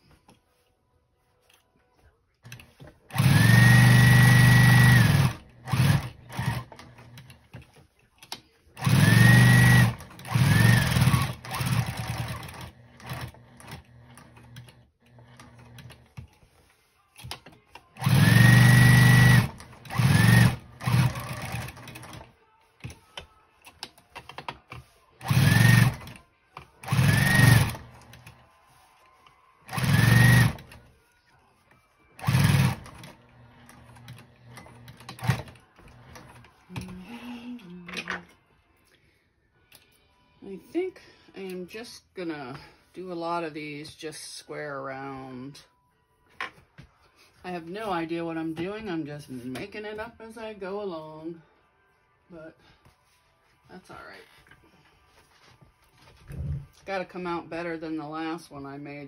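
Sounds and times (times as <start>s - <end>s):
sewing machine stitching: 2.4s - 7.8s, 8.8s - 16.3s, 17.2s - 23.0s, 23.8s - 28.4s, 29.7s - 30.9s, 32.2s - 37.0s.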